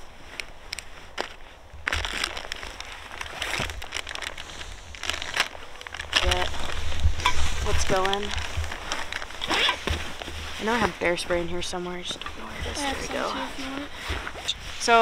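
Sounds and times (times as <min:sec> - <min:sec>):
plastic bag crinkling: 0:01.1 - 0:10.7.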